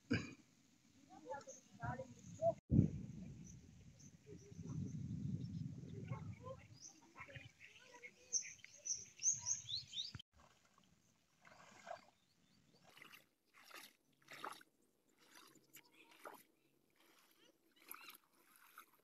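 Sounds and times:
birds chirping: 3.4 - 10.2
faint water splashes: 5.9 - 19.0.

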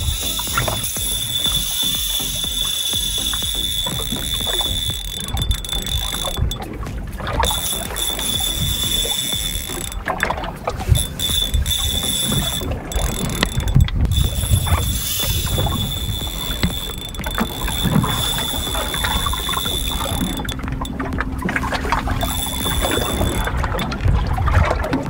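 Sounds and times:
fishing reel whirring and clicking: 0.0 - 25.0
low rumble: 0.0 - 25.0.

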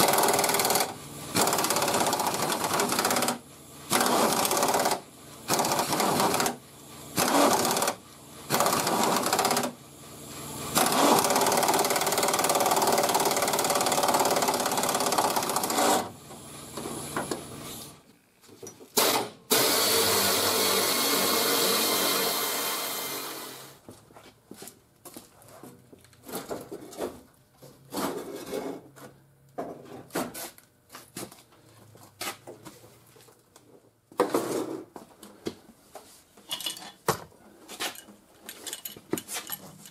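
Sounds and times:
air ratchet spinning bolts: 7.2 - 9.7.

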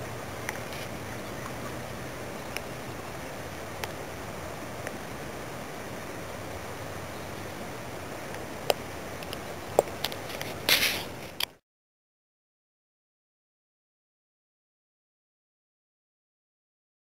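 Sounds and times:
creek water flowing: 0.0 - 11.5.

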